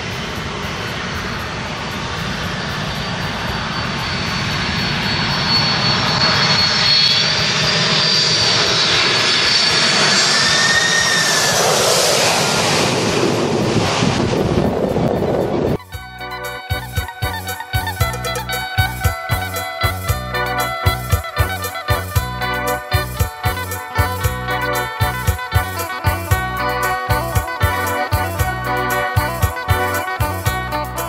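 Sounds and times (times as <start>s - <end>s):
high whine of fans: 0.0s - 16.0s
jet passing overhead: 0.0s - 31.0s.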